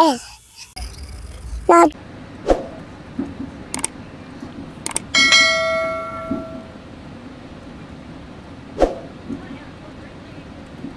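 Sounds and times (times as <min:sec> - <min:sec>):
sharp clicks: 0:03.7 - 0:04.0, 0:04.8 - 0:05.1
bell-like ding: 0:05.2 - 0:06.8.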